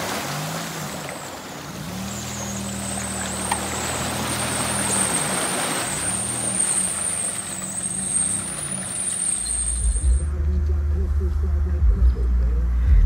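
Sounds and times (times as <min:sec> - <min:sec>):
splashing: 0:00.0 - 0:10.3
car engine revving: 0:00.0 - 0:13.0
steady high whistle: 0:06.0 - 0:10.3
deep low rumble: 0:09.8 - 0:13.0.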